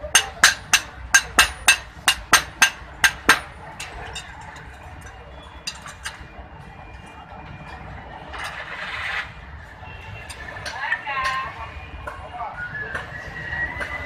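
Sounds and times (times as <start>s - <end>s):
sledgehammer striking metal on anvil: 0.0s - 4.3s.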